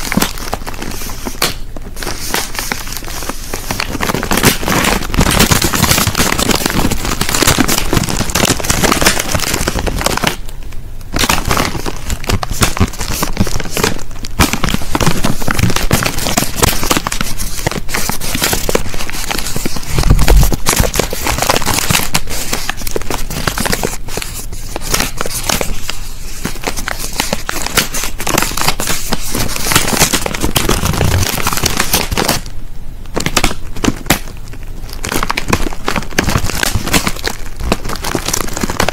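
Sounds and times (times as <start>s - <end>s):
plastic crisp packet crinkling: 0.0s - 10.5s, 11.1s - 32.5s, 33.1s - 38.9s.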